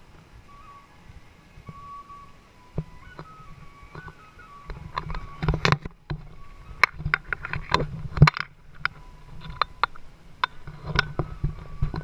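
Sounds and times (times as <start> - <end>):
faint music: 0.0 - 12.0
low hum: 0.0 - 12.0
sharp clicks and knocks: 3.9 - 12.0.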